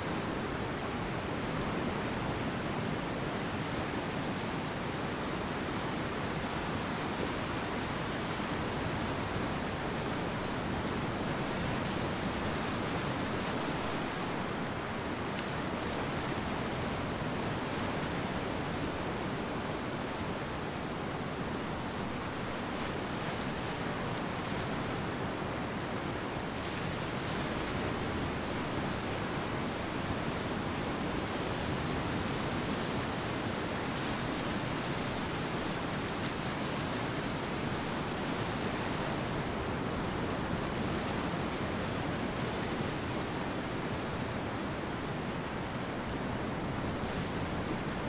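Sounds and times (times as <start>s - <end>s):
ocean surf breaking on beach: 0.0s - 48.0s.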